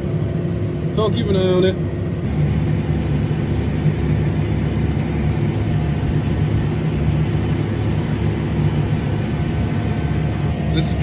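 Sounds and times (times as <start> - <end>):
tractor engine running under load: 2.3 - 11.0.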